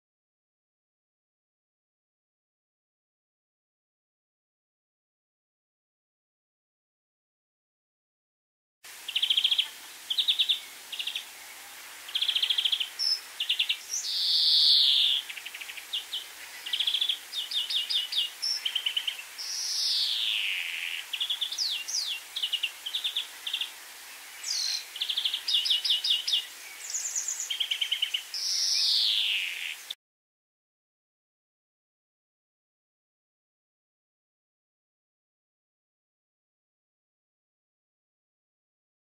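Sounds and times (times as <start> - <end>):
bird twittering trills: 9.0 - 29.9.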